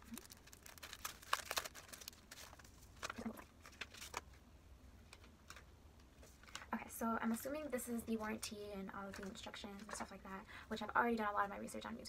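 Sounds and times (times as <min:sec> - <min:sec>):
packaging crinkling and rustling: 0:00.0 - 0:04.4.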